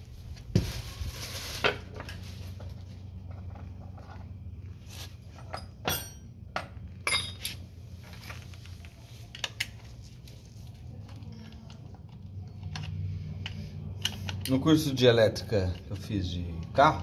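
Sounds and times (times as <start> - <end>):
metal tools clinking: 5.4 - 6.3, 7.0 - 7.6.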